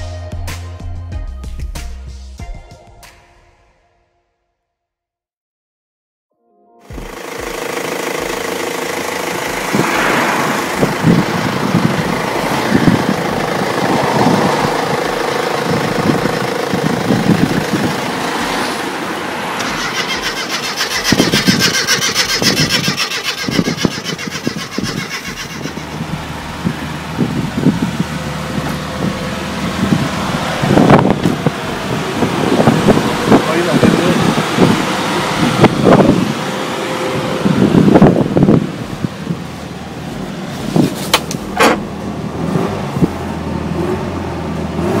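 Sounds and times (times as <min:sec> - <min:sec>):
car engine starting and running: 0:06.8 - 0:45.0
engine knocking: 0:06.9 - 0:09.9, 0:10.7 - 0:18.1, 0:19.6 - 0:26.3.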